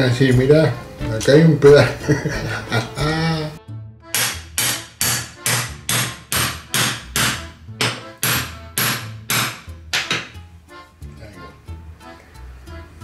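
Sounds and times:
hammer striking metal pin: 0:04.1 - 0:10.4.

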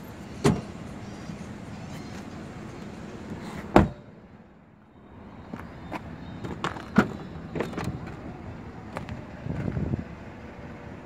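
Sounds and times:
car door slamming shut: 0:00.4 - 0:00.7, 0:03.7 - 0:04.1.

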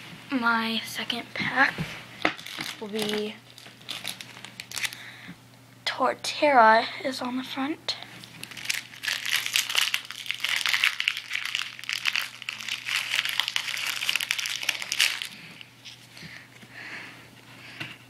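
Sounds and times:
foil wrapper crinkling: 0:02.3 - 0:05.0, 0:08.2 - 0:16.0.

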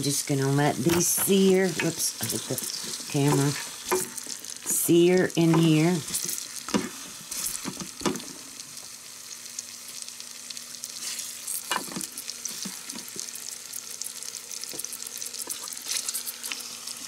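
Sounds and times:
meat sizzling and crackling: 0:00.0 - 0:17.0
tongs knocking in pan: 0:03.2 - 0:04.1.

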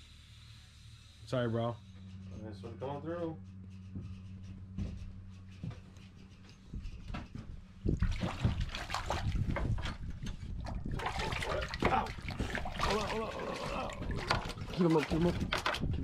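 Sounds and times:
fish splashing in water: 0:07.9 - 0:15.8.

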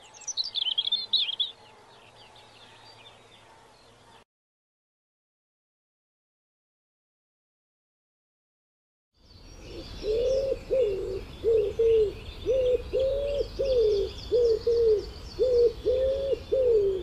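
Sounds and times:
small birds chirping: 0:00.0 - 0:04.2, 0:09.2 - 0:17.0
pigeon cooing: 0:09.7 - 0:17.0.

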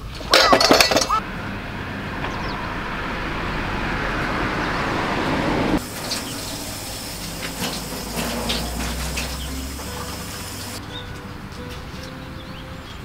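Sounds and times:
tap water running into sink: 0:05.8 - 0:10.8.

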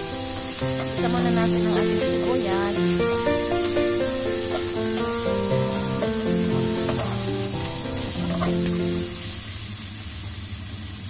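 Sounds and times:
background music: 0:00.0 - 0:09.2
onion sizzling in oil: 0:00.0 - 0:11.0
spatula stirring in wok: 0:02.9 - 0:09.2.

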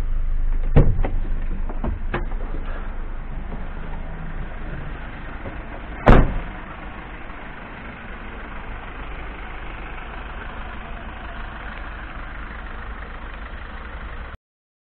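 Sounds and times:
diesel engine idling: 0:00.0 - 0:14.4
van door slamming: 0:00.6 - 0:07.8.

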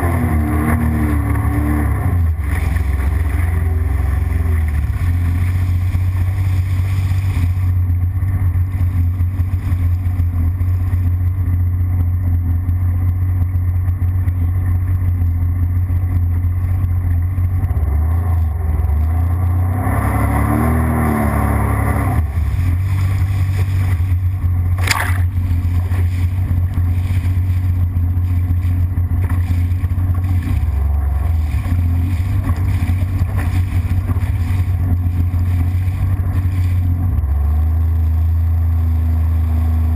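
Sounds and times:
jet ski engine running: 0:00.0 - 0:39.9
sharp water slap: 0:24.7 - 0:27.4.

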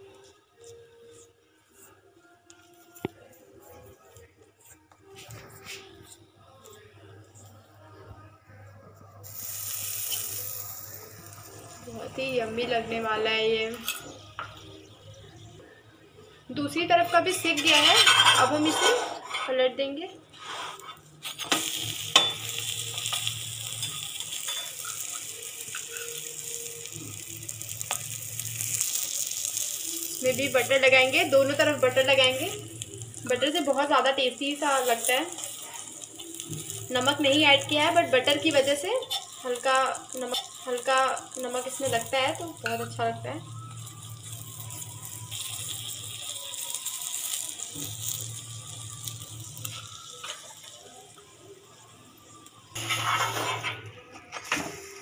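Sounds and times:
flatbread sizzling on a griddle: 0:09.2 - 0:15.5, 0:17.3 - 0:19.5, 0:20.3 - 0:55.0.

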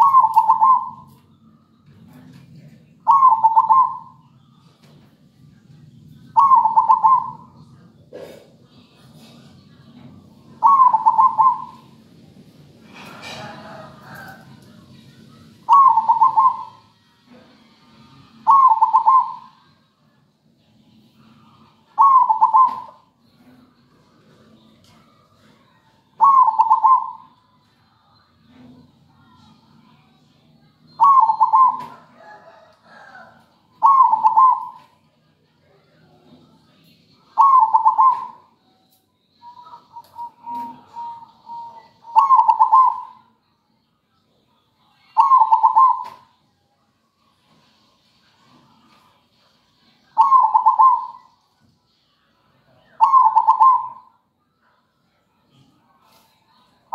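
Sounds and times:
dove cooing: 0:00.0 - 0:01.2, 0:03.0 - 0:04.2, 0:06.3 - 0:12.0, 0:15.6 - 0:16.8, 0:18.3 - 0:19.7, 0:21.4 - 0:23.6, 0:26.2 - 0:27.3, 0:31.0 - 0:34.9, 0:37.4 - 0:38.5, 0:39.4 - 0:43.3, 0:45.2 - 0:46.2, 0:50.2 - 0:51.3, 0:52.9 - 0:54.1.

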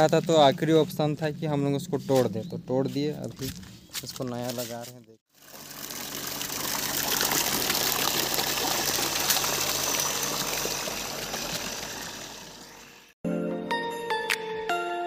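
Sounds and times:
water gushing into plastic crate: 0:05.3 - 0:12.8
pump motor humming: 0:05.3 - 0:13.1.

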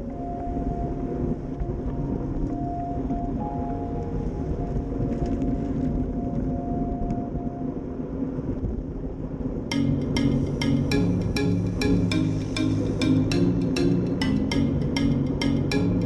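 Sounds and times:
wind rushing over microphone: 0:00.0 - 0:10.9
music with percussive beats: 0:09.7 - 0:16.0.

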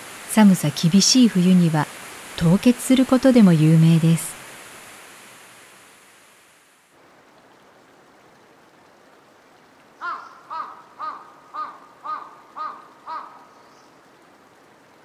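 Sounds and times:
waterfall rushing: 0:00.0 - 0:05.5
faint steady hiss: 0:00.0 - 0:15.0
crow cawing: 0:10.0 - 0:13.6.

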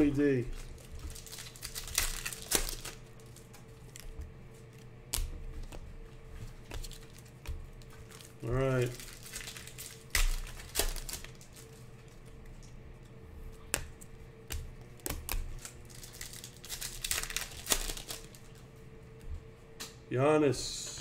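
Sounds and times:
wrapper crinkling: 0:00.0 - 0:04.8, 0:06.6 - 0:12.3, 0:15.5 - 0:18.6
faint steady hum: 0:00.0 - 0:21.0
cards flicking and clicking: 0:00.6 - 0:19.2.

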